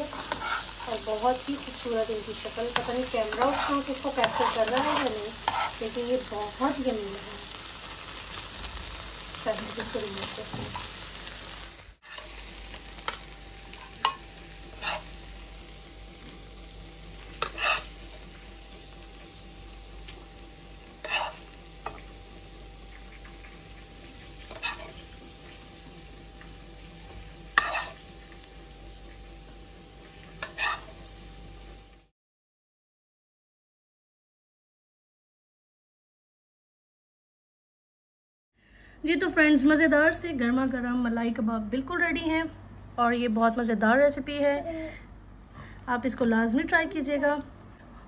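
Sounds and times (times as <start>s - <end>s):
meat sizzling in a pan: 0.0s - 32.1s.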